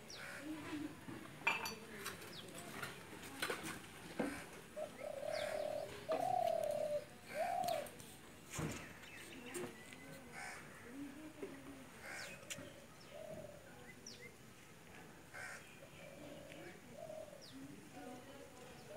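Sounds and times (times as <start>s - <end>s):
dove cooing: 4.2s - 8.0s, 10.3s - 13.8s, 15.4s - 18.1s.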